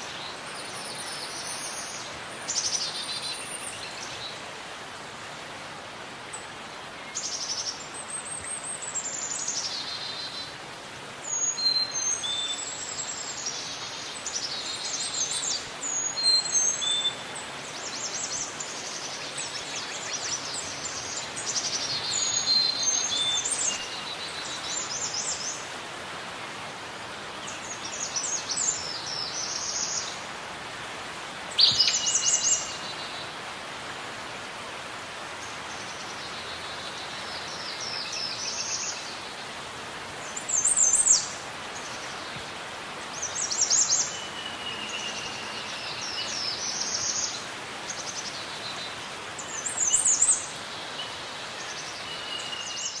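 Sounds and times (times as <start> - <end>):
background hiss: 0.0 - 53.0
birds chirping: 31.3 - 33.5.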